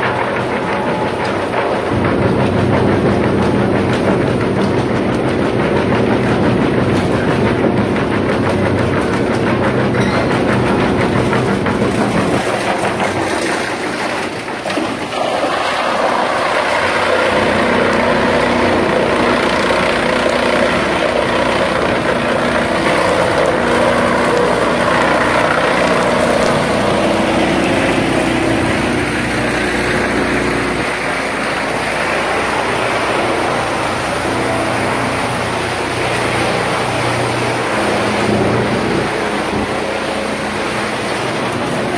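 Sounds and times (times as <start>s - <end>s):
clatter of wood being chipped: 0.0s - 33.2s
wood chipper motor hum: 0.0s - 41.9s.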